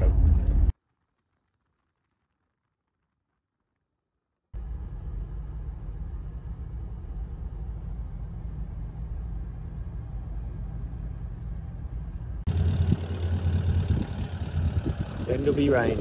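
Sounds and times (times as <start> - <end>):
car engine rumble: 0.0 - 0.8, 4.6 - 16.0
road noise: 4.6 - 16.0.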